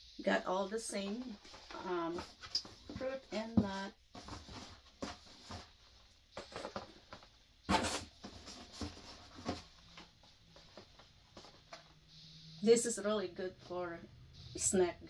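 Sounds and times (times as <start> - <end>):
cardboard rustling and scraping: 1.1 - 12.0.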